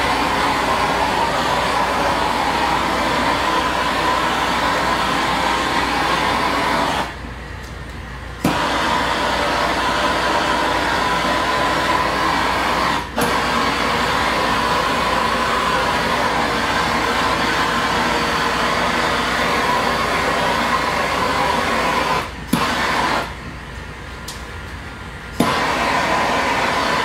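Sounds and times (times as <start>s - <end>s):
heat gun fan whine: 0.0s - 27.0s.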